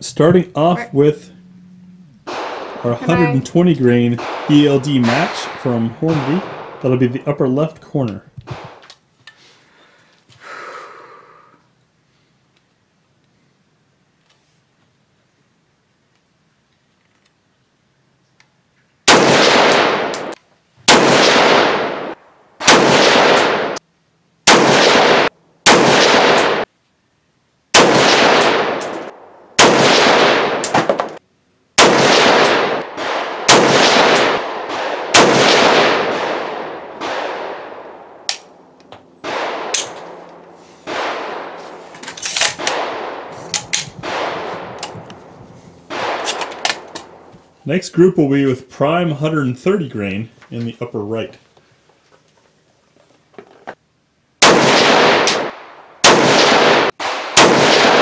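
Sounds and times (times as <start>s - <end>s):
rifle shots: 2.3s - 3.4s, 4.0s - 7.1s, 8.5s - 8.8s, 19.1s - 23.8s, 24.4s - 26.7s, 27.7s - 31.2s, 31.8s - 38.5s, 39.2s - 45.0s, 45.8s - 47.3s, 54.4s - 58.0s.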